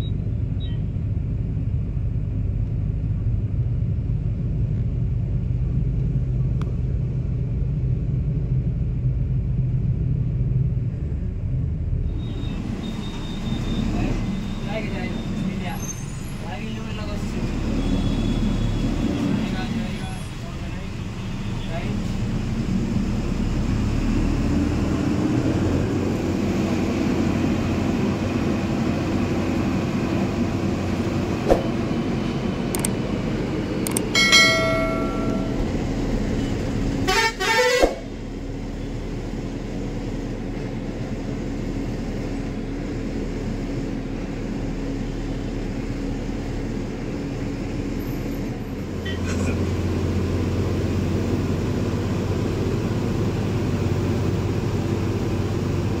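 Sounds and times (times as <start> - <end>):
road noise: 0.0 - 56.0
coach engine running: 25.0 - 47.8
vehicle horn: 37.0 - 38.0.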